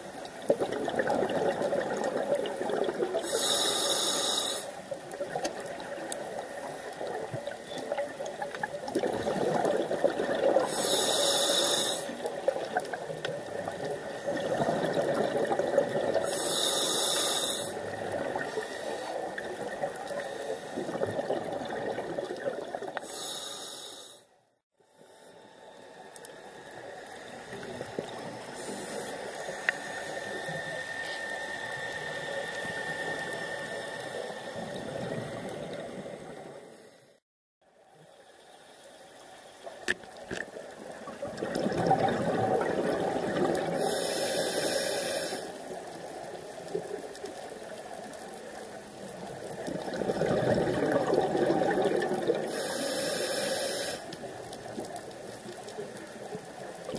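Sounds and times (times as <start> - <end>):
underwater wash: 0.0 - 24.2, 25.3 - 37.2, 38.8 - 56.9
diver breathing through regulator: 3.2 - 4.8, 10.6 - 12.2, 16.2 - 19.4, 23.0 - 24.3, 27.0 - 35.6, 43.6 - 45.6, 52.4 - 54.2.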